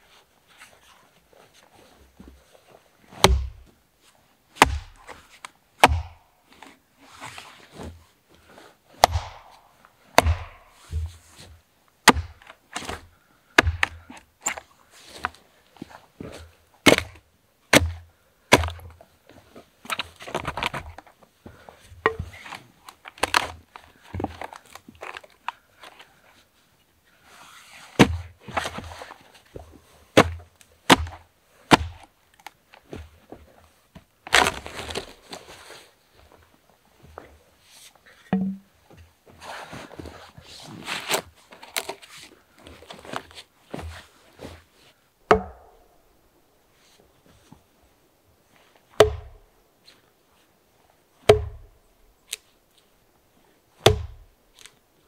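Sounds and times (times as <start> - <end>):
axe chopping log: 3.2 - 3.6, 4.6 - 5.0, 5.8 - 6.2, 9.0 - 11.1, 12.0 - 13.0, 13.6 - 14.0, 16.8 - 18.8, 28.0 - 28.2, 30.2 - 32.0, 45.3 - 45.8, 49.0 - 49.4, 51.2 - 51.7, 53.8 - 54.3
wood cracking: 9.0 - 9.6.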